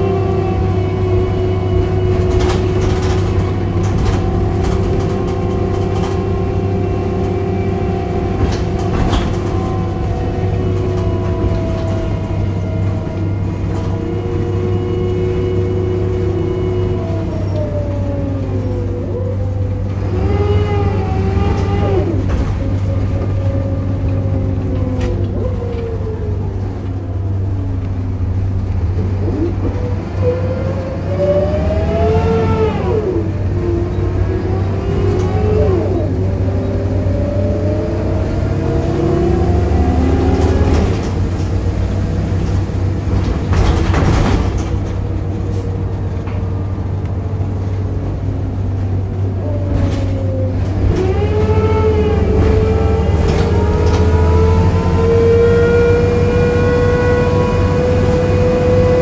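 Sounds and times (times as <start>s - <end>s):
bus body rattling: 0.0s - 59.0s
bus engine drone: 0.0s - 59.0s
groaning tone sliding in pitch: 9.4s - 41.1s, 49.2s - 59.0s.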